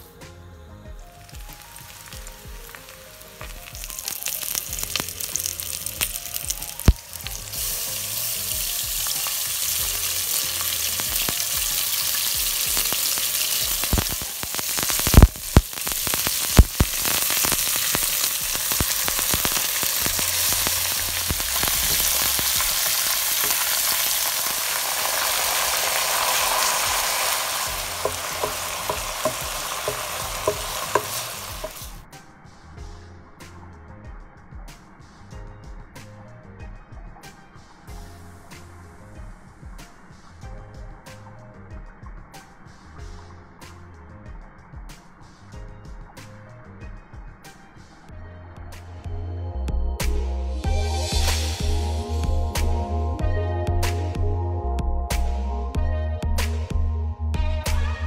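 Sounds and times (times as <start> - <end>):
hot oil sizzling in a pot: 1.2 - 32.1, 50.6 - 52.8.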